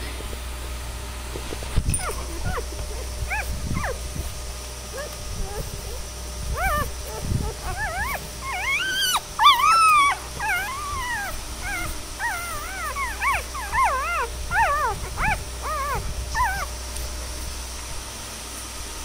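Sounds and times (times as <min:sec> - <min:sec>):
newborn puppies crying: 0:02.0 - 0:04.0, 0:04.9 - 0:16.7.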